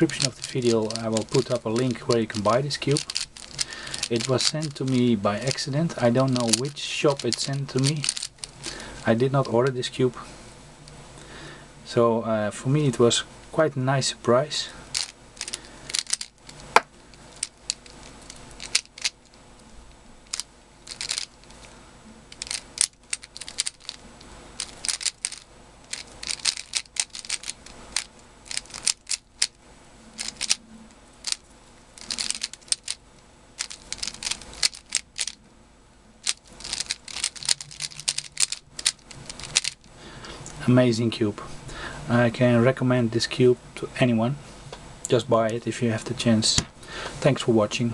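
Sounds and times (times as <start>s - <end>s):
puzzle cube clicking: 0.0s - 8.8s, 14.9s - 19.2s, 20.2s - 21.6s, 22.3s - 24.0s, 24.6s - 29.6s, 30.2s - 30.6s, 32.0s - 33.0s, 33.6s - 35.4s, 36.2s - 39.9s.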